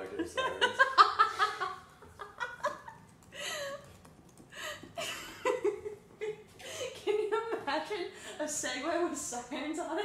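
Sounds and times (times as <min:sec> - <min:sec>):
people laughing: 0:00.0 - 0:03.0.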